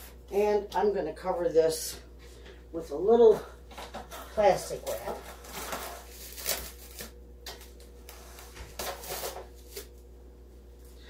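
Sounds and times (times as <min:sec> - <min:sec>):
plastic wrap rustling: 0:03.7 - 0:09.9.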